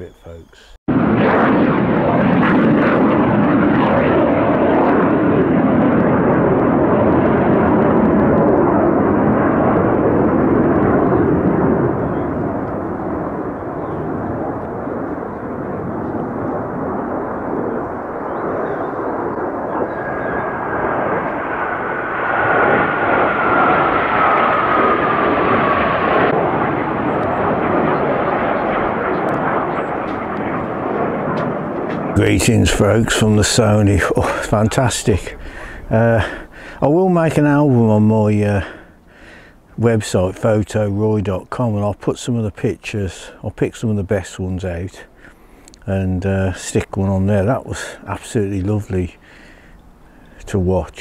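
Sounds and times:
jet roar: 0.0s - 51.0s
high engine whine: 1.0s - 38.2s.

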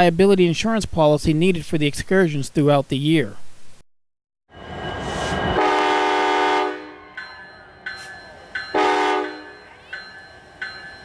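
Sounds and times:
locomotive bell ringing: 4.5s - 11.0s
train horn blast: 5.4s - 7.1s, 8.7s - 9.6s.

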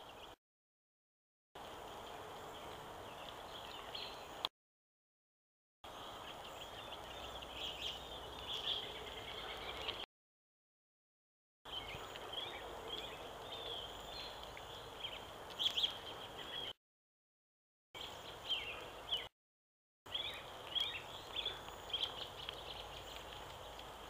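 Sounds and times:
small birds chirping: 0.0s - 0.4s, 1.7s - 4.5s, 5.9s - 10.1s, 11.7s - 16.8s, 18.0s - 19.3s, 20.1s - 24.0s.

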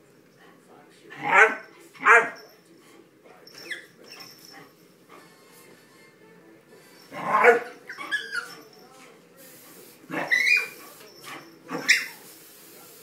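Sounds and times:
dogs yipping and barking: 7.1s - 8.7s, 10.1s - 12.2s.

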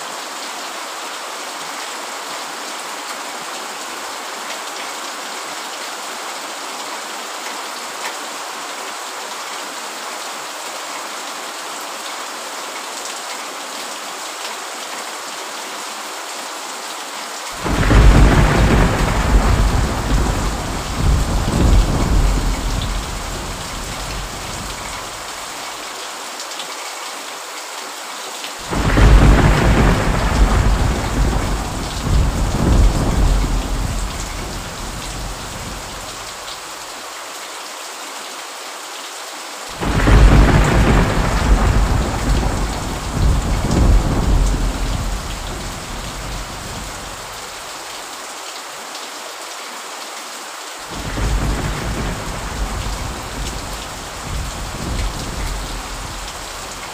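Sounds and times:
steady rain: 0.0s - 56.9s
thunder rumbling: 17.6s - 25.3s, 28.7s - 36.2s, 39.8s - 47.3s, 50.9s - 56.8s.

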